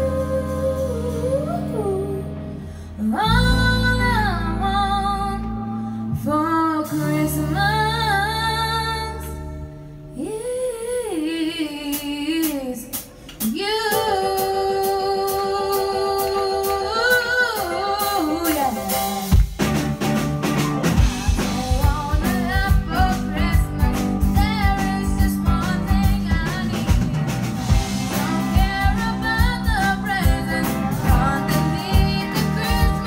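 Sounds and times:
woman singing: 0.0 - 9.6, 10.2 - 19.3, 21.2 - 33.0
accompanying music: 13.5 - 33.0.

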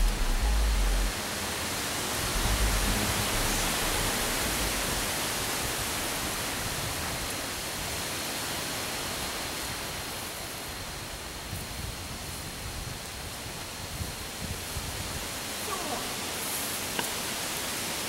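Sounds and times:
low rumbles: 0.0 - 7.6
steady hiss: 0.0 - 18.0.

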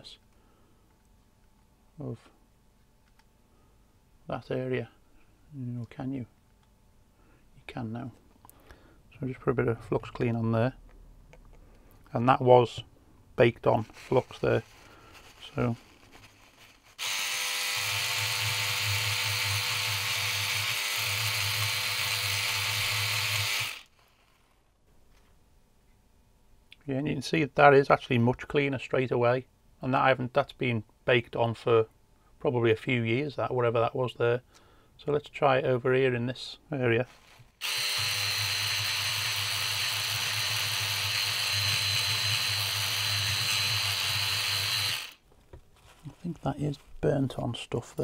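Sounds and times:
electric cleaning brush buzzing: 16.8 - 24.5, 37.6 - 45.2.

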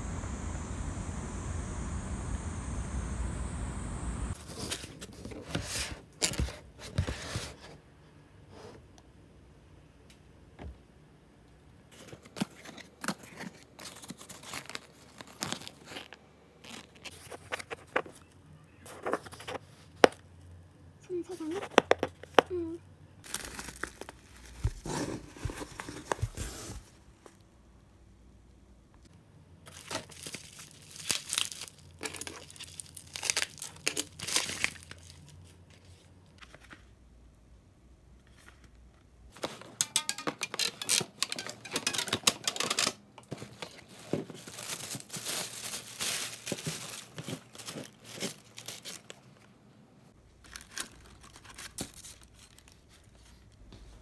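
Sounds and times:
bubble wrap rustling: 12.2 - 17.6, 23.2 - 27.0, 29.7 - 36.1, 39.3 - 49.5, 50.3 - 54.0
tissue paper rustling: 43.4 - 49.1, 50.4 - 54.0.

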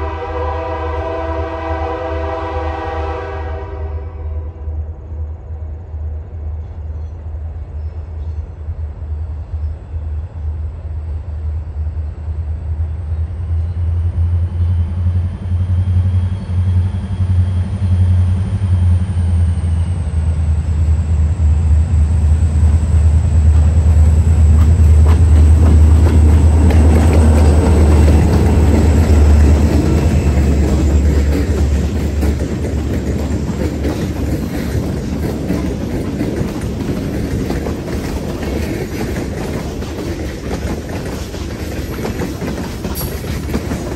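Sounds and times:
diesel locomotive engine rumble: 0.0 - 43.9
train wheels clattering on rails: 22.0 - 43.9.

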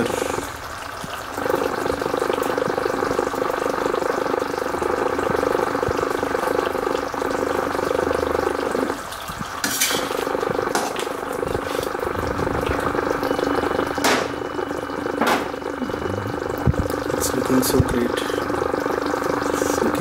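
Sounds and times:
curry sizzling and bubbling: 0.0 - 20.0
spoon stirring in a pan: 9.6 - 10.2.

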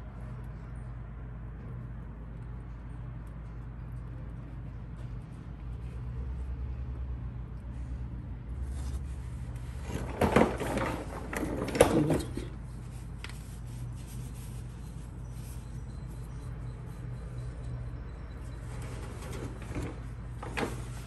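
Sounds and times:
rubbing and knocking: 8.6 - 15.6.

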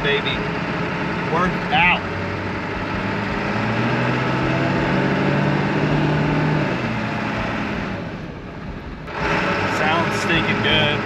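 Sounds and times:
diesel truck engine revving: 0.0 - 11.0.

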